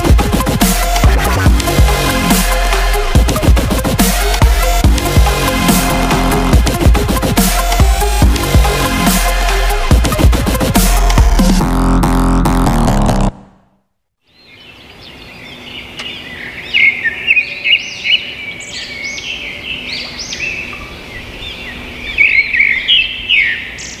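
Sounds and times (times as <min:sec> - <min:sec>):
birds chirping: 0:14.3 - 0:24.0.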